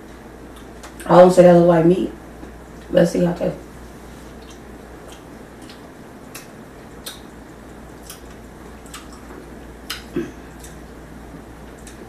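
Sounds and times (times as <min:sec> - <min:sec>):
faint chewing: 0:04.1 - 0:12.0.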